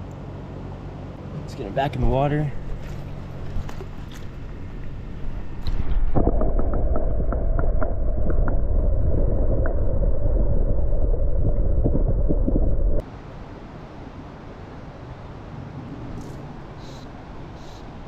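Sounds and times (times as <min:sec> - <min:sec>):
muffled underwater water rush: 0:02.1 - 0:13.1.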